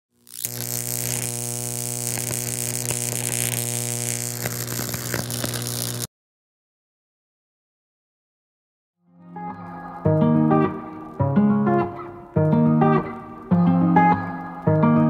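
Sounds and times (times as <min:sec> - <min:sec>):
electrical crackles: 0:00.1 - 0:06.1
neon light electrical hum: 0:00.2 - 0:06.1.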